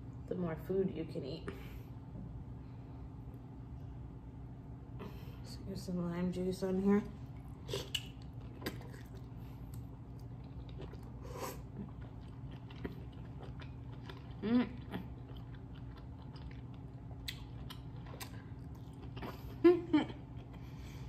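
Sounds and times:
wet chewing and mouth smacks: 0:07.3 - 0:20.7.

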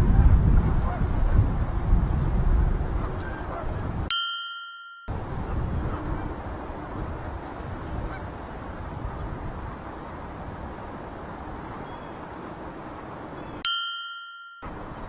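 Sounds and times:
outdoor hiss and rumble: 0:00.0 - 0:04.1, 0:05.1 - 0:13.6, 0:14.6 - 0:15.0
bell-like ding: 0:04.1 - 0:05.1, 0:13.6 - 0:14.7
geese honking faintly: 0:05.3 - 0:10.4.

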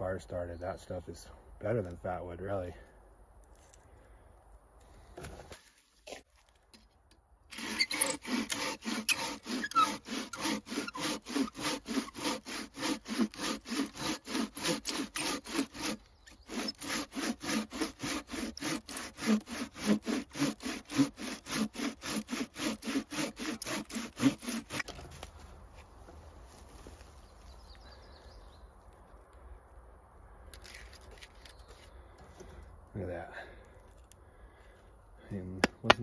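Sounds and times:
saw cutting wood: 0:07.5 - 0:25.3.

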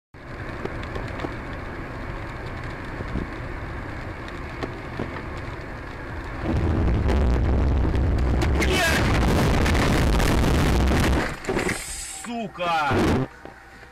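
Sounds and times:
tyre noise on wet road: 0:00.2 - 0:13.9
loud low rumble: 0:06.3 - 0:11.4.

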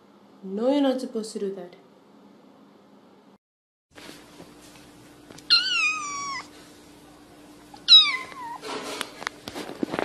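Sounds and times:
cat meowing: 0:05.5 - 0:06.5, 0:07.7 - 0:08.6.

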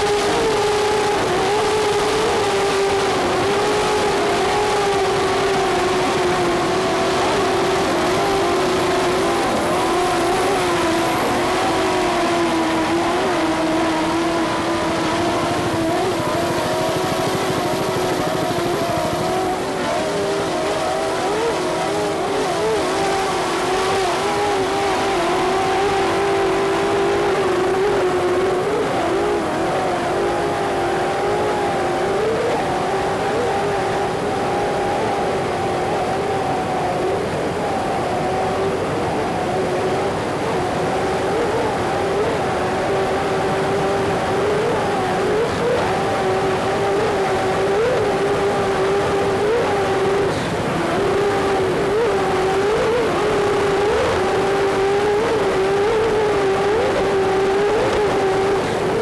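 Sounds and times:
boat engines droning: 0:00.0 - 0:59.0.

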